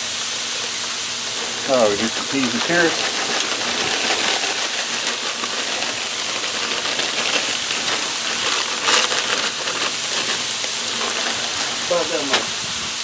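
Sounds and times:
vegetables sizzling on griddle: 0.0s - 13.0s
vegetables poured onto griddle: 0.4s - 13.0s.

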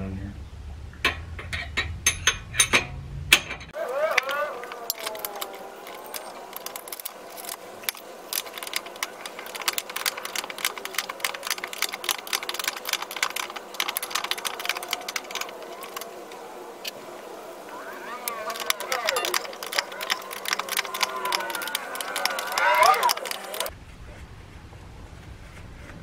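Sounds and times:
wrench rapid metallic clicks: 4.2s - 16.1s, 18.2s - 23.7s.

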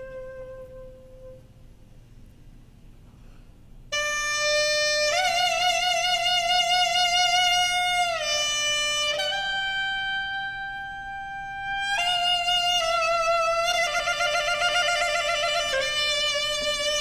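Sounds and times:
double-reed pipe solo melody: 0.0s - 1.6s, 3.9s - 17.0s.

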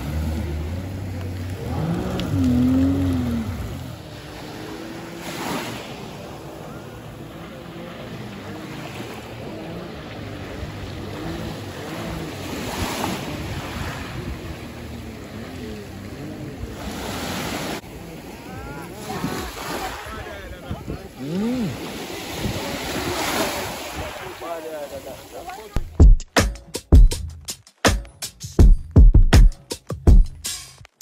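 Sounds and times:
jet ski engine droning: 0.0s - 25.7s
small waves washing on beach: 0.0s - 25.8s
wind on microphone: 10.4s - 15.4s, 19.1s - 24.4s.

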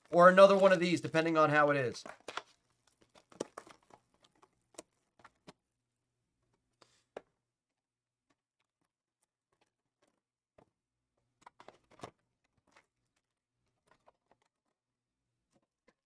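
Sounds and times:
foil pack crinkling: 0.0s - 5.5s.

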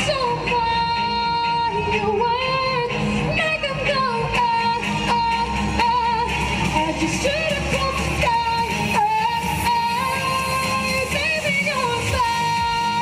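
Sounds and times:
recorded backing track: 0.0s - 13.0s
woman singing pop song: 0.0s - 13.0s.

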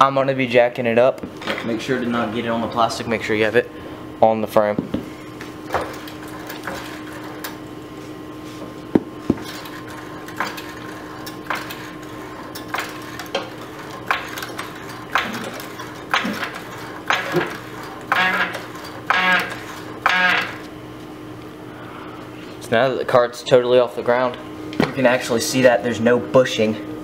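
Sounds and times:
floor jack pump clanking: 5.7s - 7.6s, 8.9s - 20.7s
jack creaking and squeaking: 9.4s - 20.7s.

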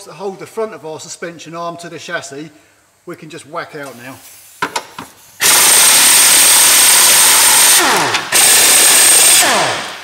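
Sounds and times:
impact wrench whining: 4.6s - 10.0s.

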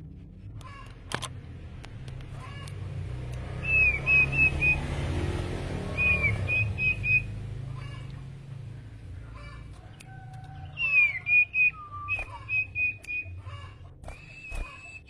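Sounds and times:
songbird whistling: 3.5s - 4.9s, 5.8s - 7.5s, 9.9s - 15.0s.

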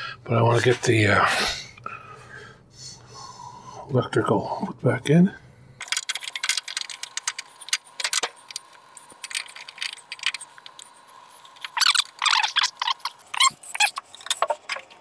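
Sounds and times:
metallic clicks and rattles: 5.8s - 15.0s.

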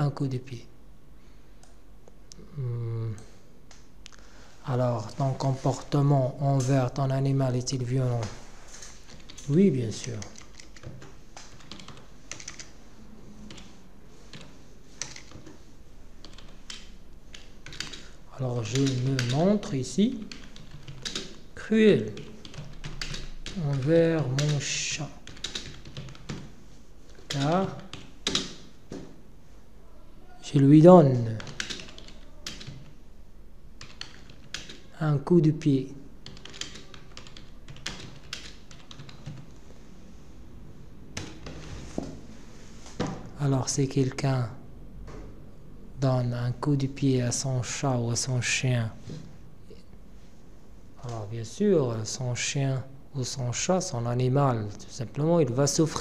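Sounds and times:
computer keyboard typing: 8.2s - 12.8s, 13.5s - 15.6s, 16.2s - 28.7s, 31.2s - 33.0s, 33.8s - 34.9s, 36.2s - 39.6s, 41.2s - 41.7s.

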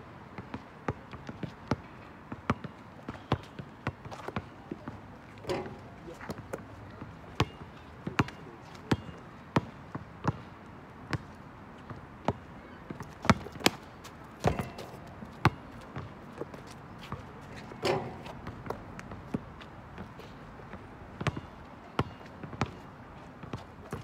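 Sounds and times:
basketball bouncing on asphalt: 5.5s - 10.5s, 11.1s - 22.8s.

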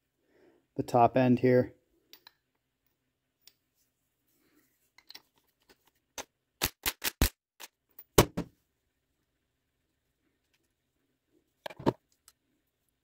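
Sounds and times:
faint clicks of tool handling: 2.1s - 3.7s, 4.9s - 6.0s.

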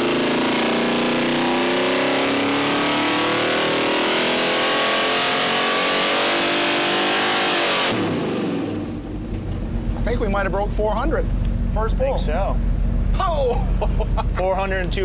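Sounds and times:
engine revving at full throttle: 0.0s - 9.1s.

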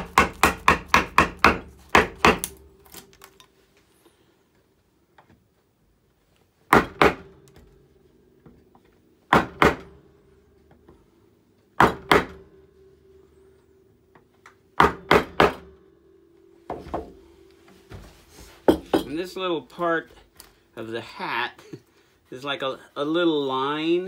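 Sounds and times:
wooden mallet striking gouge: 0.0s - 3.2s, 9.3s - 9.9s, 14.8s - 15.8s
faint steady hum: 0.0s - 24.0s.

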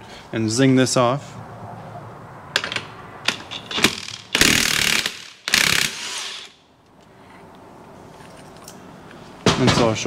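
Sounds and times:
impact wrench hammering: 2.6s - 6.6s.

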